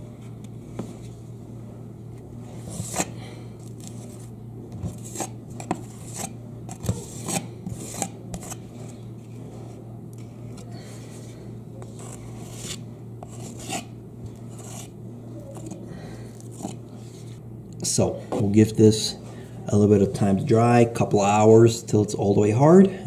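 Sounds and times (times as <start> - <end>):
putty knife scraping plaster: 2.6 - 3.1, 4.8 - 8.6, 11.8 - 14.9, 16.4 - 16.8.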